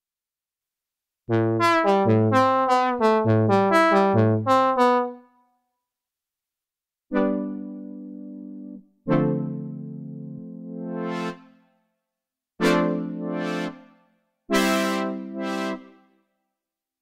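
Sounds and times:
synthesizer brass notes: 0:01.3 - 0:05.3, 0:07.1 - 0:11.6, 0:12.6 - 0:16.0.

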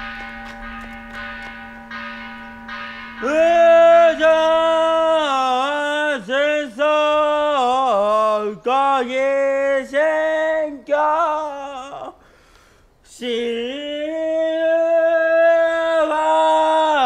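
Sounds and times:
temple bell ringing: 0:00.0 - 0:05.6
man chanting in long notes: 0:03.2 - 0:12.1.

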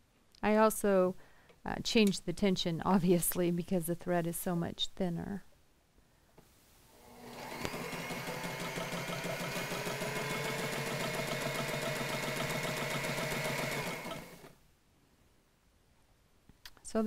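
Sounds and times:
sewing machine stitching: 0:07.0 - 0:14.6.

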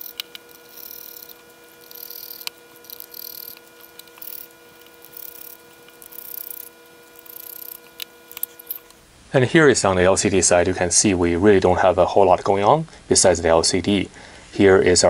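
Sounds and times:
screw click: 0:00.0 - 0:09.0
screwdriver scraping screws: 0:00.0 - 0:09.0.

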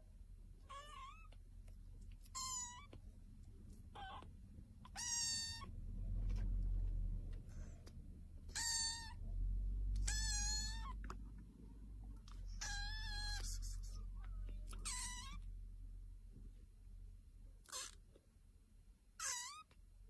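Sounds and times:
kitten meowing: 0:00.6 - 0:01.4, 0:02.2 - 0:03.0, 0:03.9 - 0:05.7, 0:08.5 - 0:09.2, 0:09.9 - 0:11.1, 0:12.5 - 0:15.4, 0:17.6 - 0:18.0, 0:19.2 - 0:19.8
low rumble: 0:05.5 - 0:12.6.

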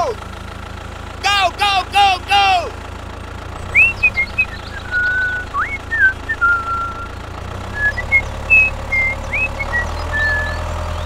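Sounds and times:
low engine-like rumble: 0:00.0 - 0:11.0
high whistled chirps: 0:03.7 - 0:10.8.

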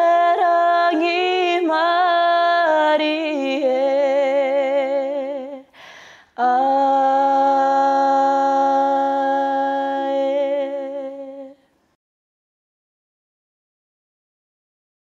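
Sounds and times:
women singing in harmony: 0:00.0 - 0:05.7, 0:06.4 - 0:11.6
quick breath: 0:05.7 - 0:06.4.

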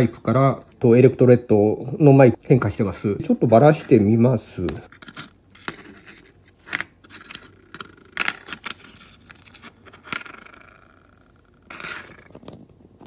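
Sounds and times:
plastic housing clicks and scrapes: 0:04.9 - 0:10.8, 0:11.7 - 0:12.6.

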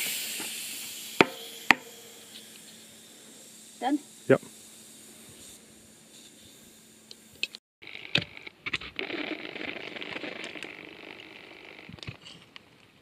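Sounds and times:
air hissing from tyre valve: 0:00.0 - 0:07.6.

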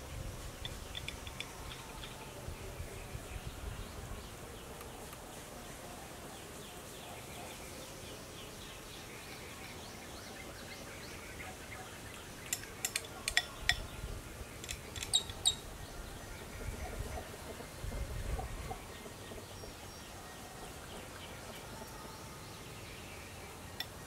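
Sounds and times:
bird chirping: 0:00.6 - 0:03.7, 0:07.0 - 0:17.3.

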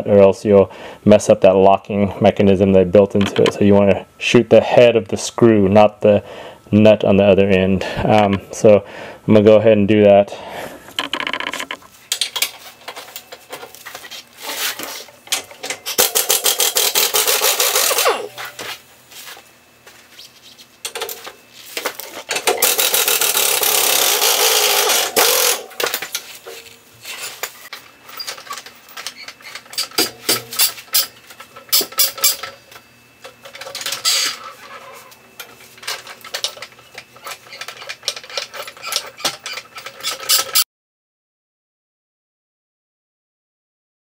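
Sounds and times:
impact wrench hammering: 0:15.8 - 0:18.5, 0:22.4 - 0:26.2, 0:29.8 - 0:31.1.

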